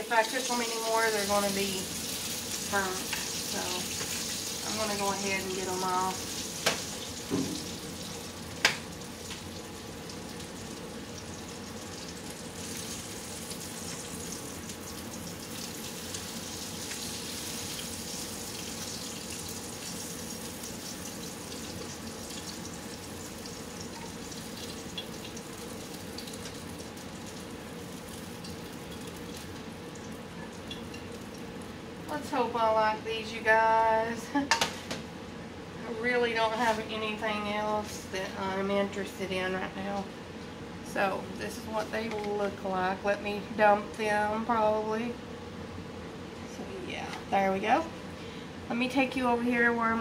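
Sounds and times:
sausages sizzling in frying pan: 0.0s - 32.0s.

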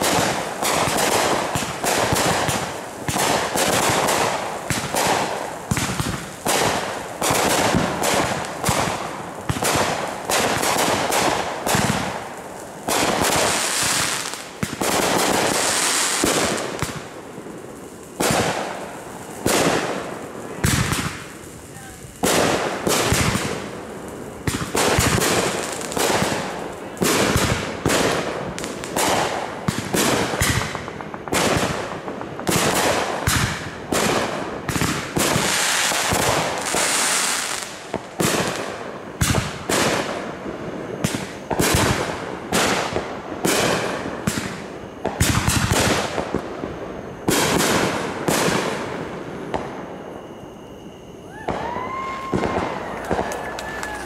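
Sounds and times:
fireworks shells bursting: 47.0s - 54.0s.

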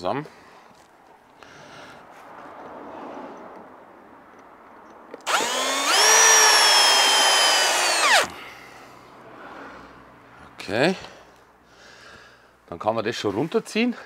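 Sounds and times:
drill motor whining: 5.3s - 8.3s.

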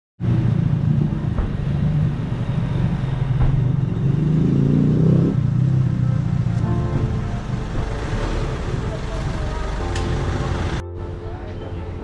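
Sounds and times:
vehicle engine running: 0.2s - 10.8s.

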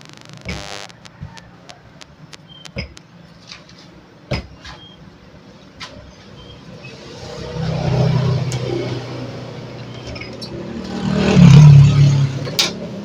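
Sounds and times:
vehicle engine passing: 6.9s - 9.9s, 10.5s - 12.5s.

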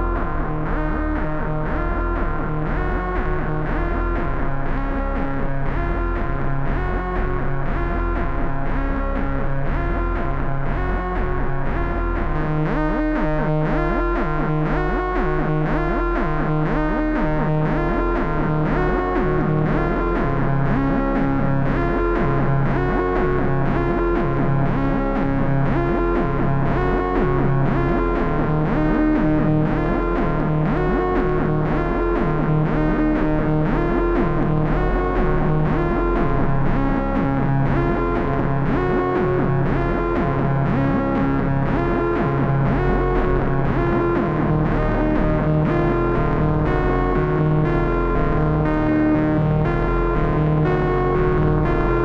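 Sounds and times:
synthesizer bass sequence: 0.0s - 52.0s
distorted synthesizer lead: 11.6s - 52.0s.

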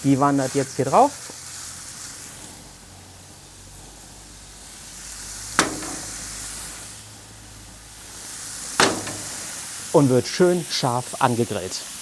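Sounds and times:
meat sizzling on griddle: 0.0s - 12.0s
sharp clack: 5.6s - 6.4s, 8.8s - 9.6s.

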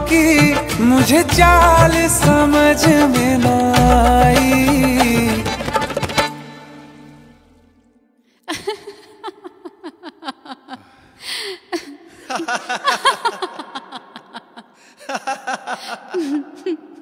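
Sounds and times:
people laughing: 8.5s - 11.0s, 11.7s - 17.0s
breathy intake: 10.8s - 12.3s.

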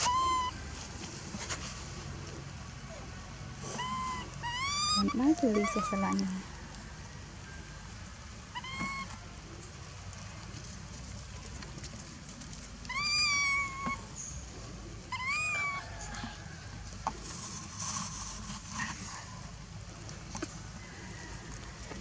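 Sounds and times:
baby monkey coo calls: 0.0s - 0.6s, 2.9s - 6.4s, 8.5s - 9.2s, 12.9s - 14.4s, 15.1s - 16.2s.

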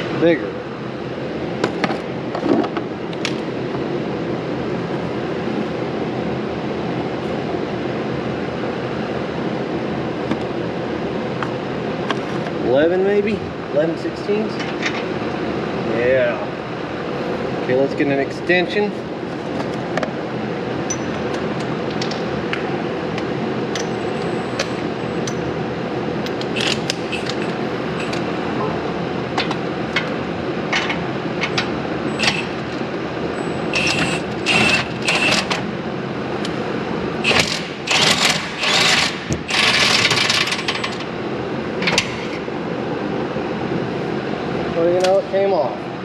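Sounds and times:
steady background hum: 0.0s - 46.0s
ratchet wrench clicking: 26.4s - 28.2s, 33.8s - 35.5s.

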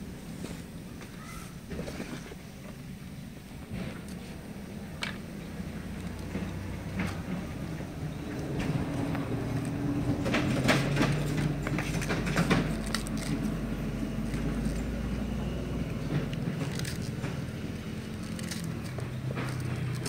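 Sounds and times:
low motor hum: 2.6s - 20.0s
cabbage leaves crackling and snapping: 8.4s - 20.0s.

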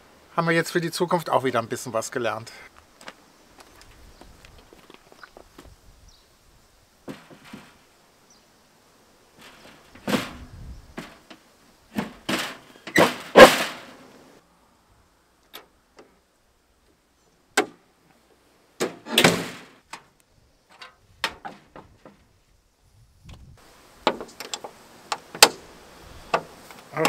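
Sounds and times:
bonnet dropping shut: 9.4s - 11.2s, 11.9s - 14.0s, 18.8s - 19.8s.

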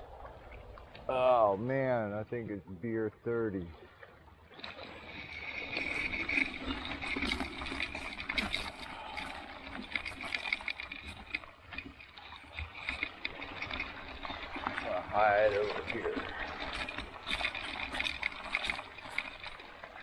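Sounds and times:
bicycle tyres crunching on gravel: 4.6s - 20.0s.

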